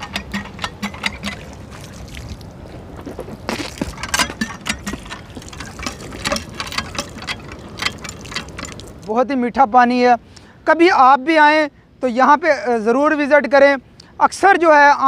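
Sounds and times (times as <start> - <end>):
metal pump handle clanking: 0.0 - 2.2, 3.5 - 9.1
water pouring and splashing: 0.0 - 9.1.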